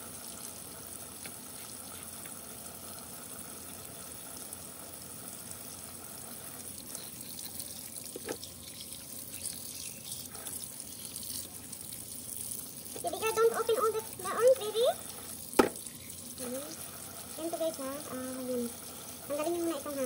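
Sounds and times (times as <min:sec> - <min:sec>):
tap running into metal sink: 0:08.1 - 0:08.5, 0:15.6 - 0:15.9.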